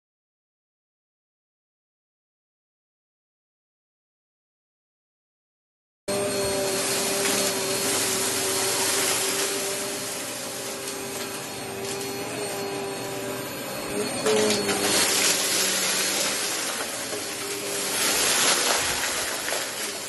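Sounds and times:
vacuum cleaner whining: 0:06.1 - 0:20.0.

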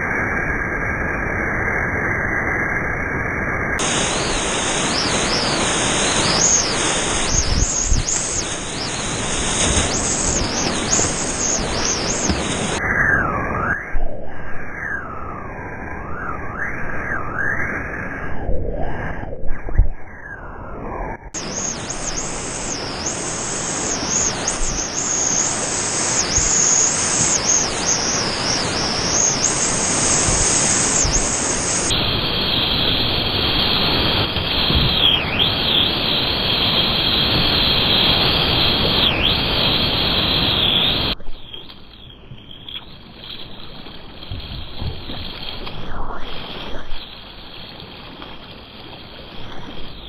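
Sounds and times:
high steady whine: 0:00.0 - 0:50.0
whitewater rushing: 0:03.8 - 0:12.8, 0:21.4 - 0:41.2
calmer flowing water swirling: 0:03.8 - 0:50.0.

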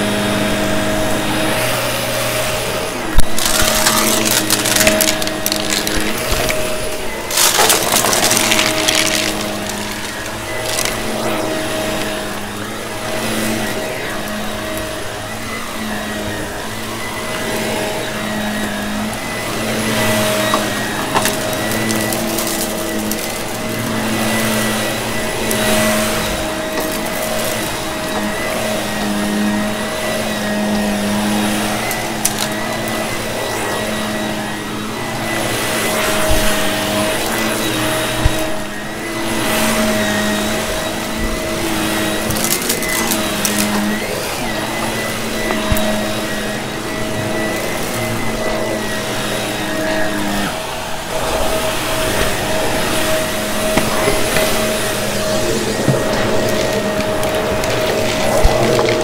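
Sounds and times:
vacuum cleaner running: 0:00.0 - 0:59.0
crackles and clicks: 0:03.2 - 0:06.6, 0:07.3 - 0:12.2, 0:20.4 - 0:24.2, 0:53.7 - 0:59.0.

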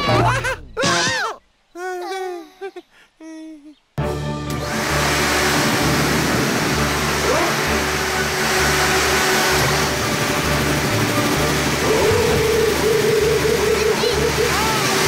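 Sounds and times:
bass background music: 0:04.0 - 0:15.0
loud rushing noise: 0:04.6 - 0:15.0.

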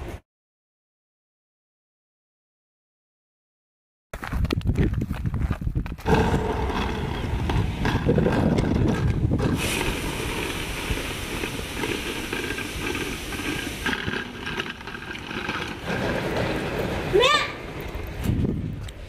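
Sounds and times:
suitcase rolling over gravel: 0:04.2 - 0:18.9.

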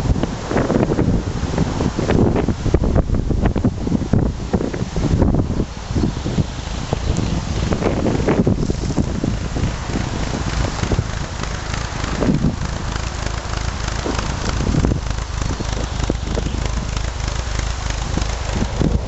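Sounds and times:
car engine hum: 0:00.0 - 0:19.0
tyres crunching on gravel: 0:07.9 - 0:19.0.

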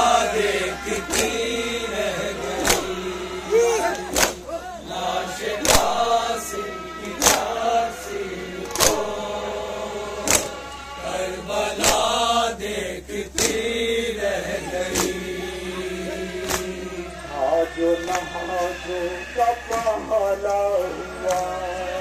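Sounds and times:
men chanting together: 0:00.0 - 0:22.0
hands striking chests in unison: 0:01.0 - 0:01.4, 0:02.6 - 0:03.1, 0:03.9 - 0:04.5, 0:05.6 - 0:06.0, 0:07.2 - 0:07.5, 0:08.6 - 0:09.1, 0:10.2 - 0:10.6, 0:11.8 - 0:12.1, 0:13.4 - 0:13.6, 0:14.9 - 0:15.2, 0:16.4 - 0:16.8.

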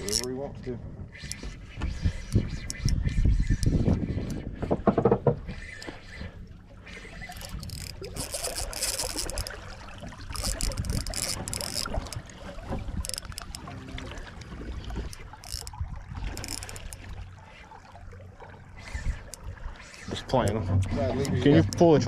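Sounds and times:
wind buffeting microphone: 0:00.0 - 0:06.2, 0:10.1 - 0:16.4
water slapping boat hull: 0:00.0 - 0:22.0.

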